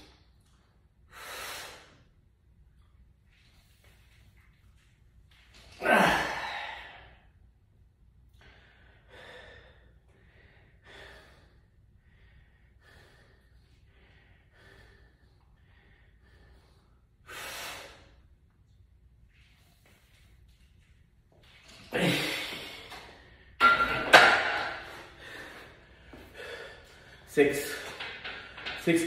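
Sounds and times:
man breathing hard: 0:01.1 - 0:02.1, 0:05.8 - 0:07.4, 0:08.3 - 0:18.3, 0:24.4 - 0:28.8.

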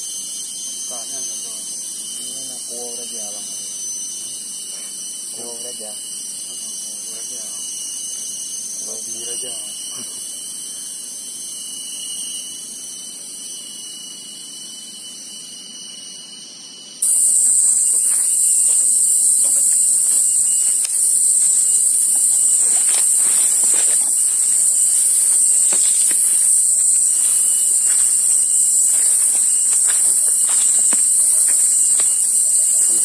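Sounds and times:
cicadas droning: 0:00.0 - 0:33.0
footsteps in leaf litter: 0:17.0 - 0:33.0.

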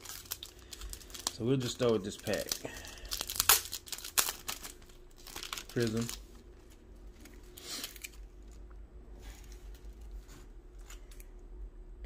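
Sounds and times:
trading cards rustling: 0:00.0 - 0:08.6.

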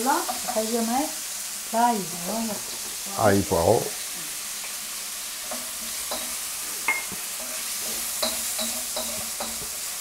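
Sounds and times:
food sizzling in hot oil: 0:00.0 - 0:10.0
wooden spoon knocking and scraping wok: 0:00.2 - 0:00.7, 0:05.4 - 0:10.0.

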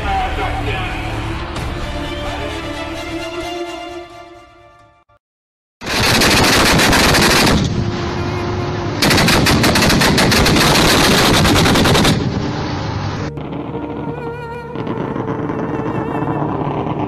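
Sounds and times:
background music: 0:00.0 - 0:05.2, 0:13.3 - 0:17.0
automatic gunfire bursts: 0:05.8 - 0:07.6, 0:09.0 - 0:12.2.

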